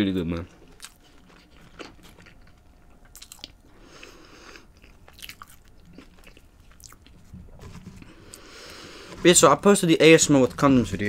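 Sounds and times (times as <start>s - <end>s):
person chewing: 0.5s - 9.2s.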